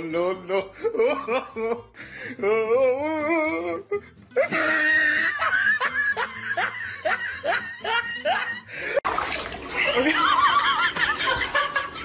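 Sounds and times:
woman laughing and squealing: 0:04.4 - 0:08.7, 0:09.7 - 0:12.0.

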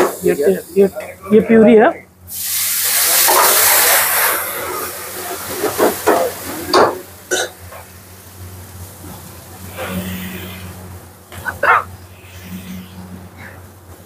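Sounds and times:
vegetables sizzling in hot oil: 0:02.3 - 0:11.2.

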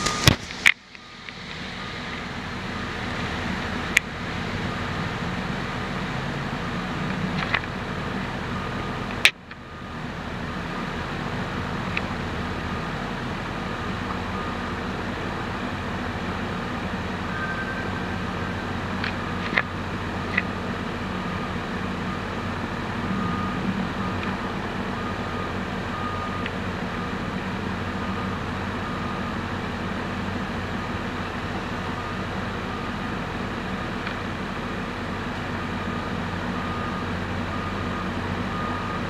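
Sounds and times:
diesel truck idling: 0:00.0 - 0:39.0
street traffic: 0:00.0 - 0:39.0
faint short beeps: 0:17.3 - 0:18.5.

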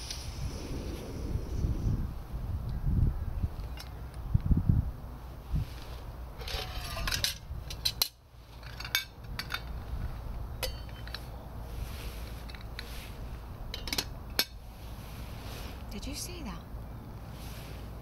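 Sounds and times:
metal cookware clinking: 0:10.6 - 0:11.2.

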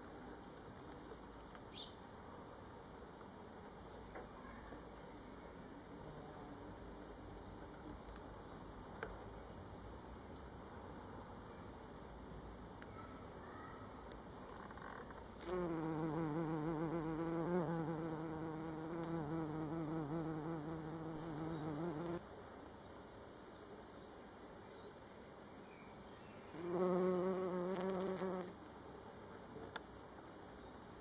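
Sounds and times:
bee buzzing: 0:15.4 - 0:22.2, 0:26.5 - 0:28.6.

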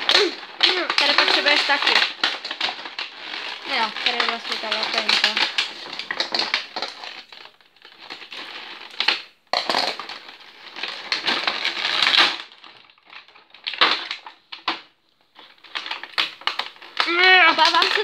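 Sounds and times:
plastic packaging crinkling: 0:00.0 - 0:18.0.

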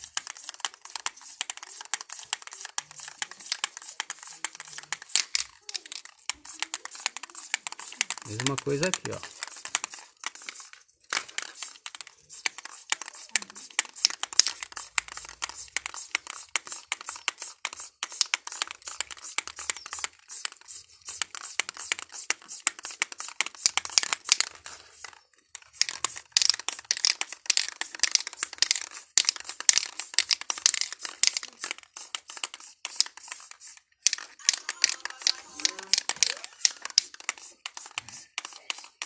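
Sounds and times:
spray-paint can hissing in bursts: 0:00.0 - 0:39.0.

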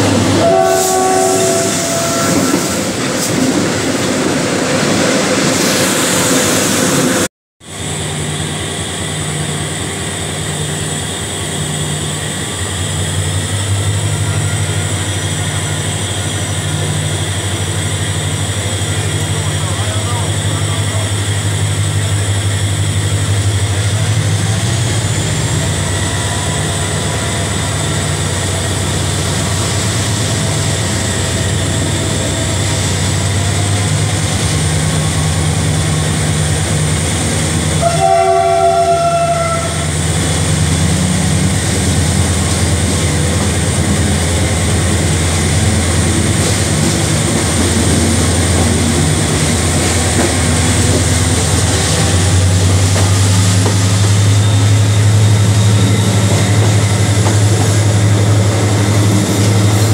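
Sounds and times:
locomotive horn blast: 0:00.0 - 0:03.0, 0:13.5 - 0:17.3, 0:37.6 - 0:41.4
diesel locomotive engine running: 0:00.0 - 0:59.9.

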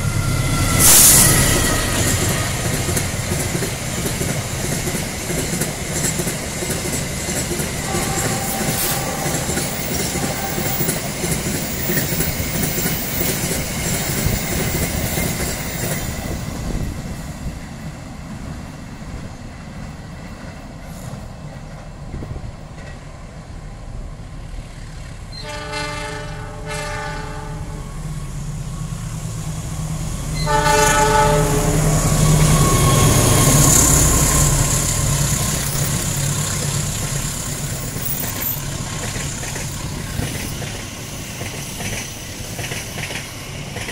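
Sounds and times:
train horn blowing: 0:00.0 - 0:02.9, 0:07.8 - 0:11.3, 0:25.3 - 0:28.0, 0:30.3 - 0:34.7
train wheels clattering: 0:00.0 - 0:17.2, 0:30.4 - 0:43.9
passenger train rumbling past: 0:00.0 - 0:43.9.

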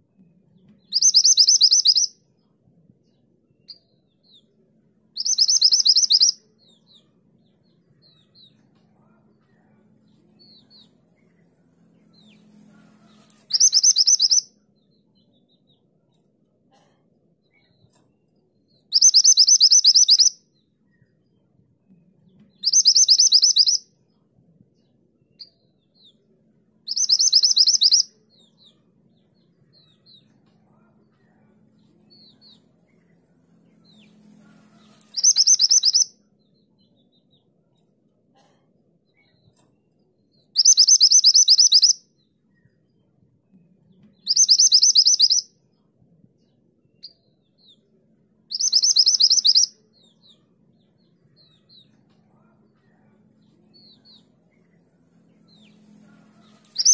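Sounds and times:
faint short bird chirps: 0:00.9 - 0:02.1, 0:05.2 - 0:07.1, 0:13.0 - 0:14.4, 0:26.9 - 0:28.0, 0:56.4 - 0:56.9
bird trilling calls: 0:01.0 - 0:02.1, 0:05.2 - 0:06.4, 0:13.5 - 0:14.4, 0:19.0 - 0:20.3, 0:22.7 - 0:23.8, 0:26.9 - 0:28.1, 0:35.1 - 0:36.1, 0:40.6 - 0:42.0, 0:44.3 - 0:45.5, 0:48.5 - 0:49.7.

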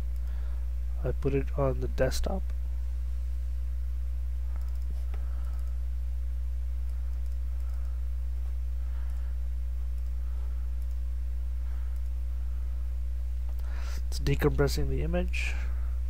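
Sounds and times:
low electrical hum: 0:00.0 - 0:16.0
faint mouse clicks: 0:04.5 - 0:05.8, 0:06.8 - 0:08.0, 0:09.0 - 0:09.3, 0:09.9 - 0:10.2, 0:10.8 - 0:11.0, 0:11.9 - 0:12.2, 0:13.4 - 0:13.8.

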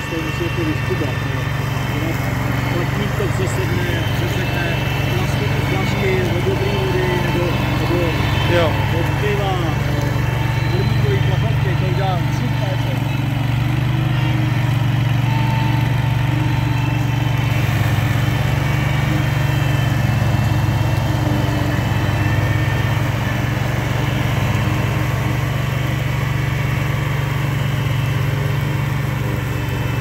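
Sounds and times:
mower engine droning: 0:00.0 - 0:30.0.

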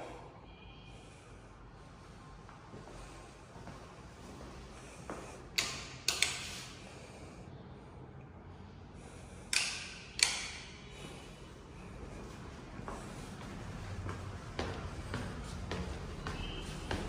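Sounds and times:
footsteps on tiled floor: 0:02.4 - 0:05.4, 0:11.0 - 0:17.0.

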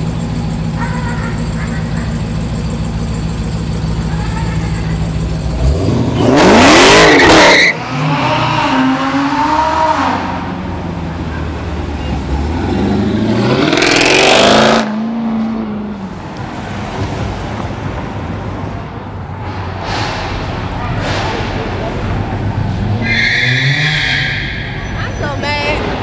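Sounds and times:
low engine sound: 0:00.0 - 0:06.5
car engines revving hard: 0:04.6 - 0:18.4, 0:19.1 - 0:25.0.

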